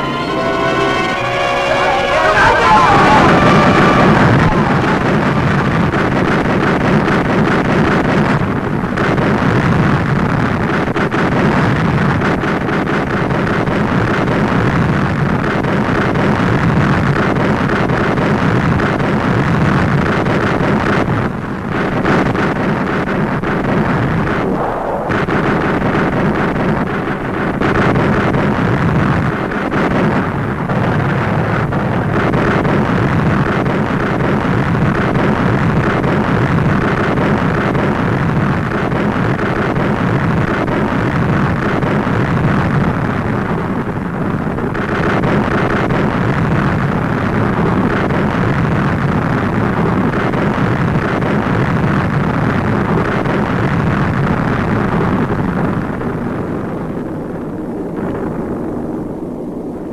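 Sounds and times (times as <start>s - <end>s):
aircraft engines: 0.0s - 10.5s
explosions: 24.1s - 28.0s.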